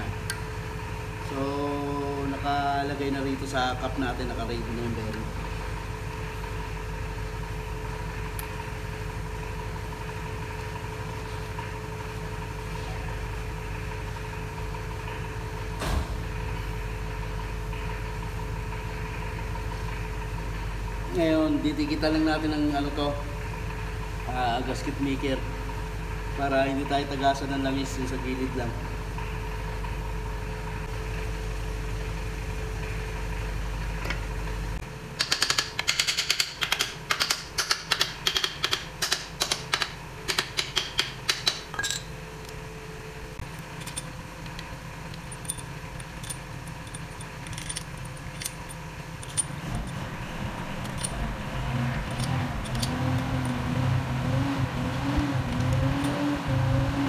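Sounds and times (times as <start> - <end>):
metal bolts clinking: 40.6 - 42.2, 43.5 - 51.4, 52.0 - 53.7.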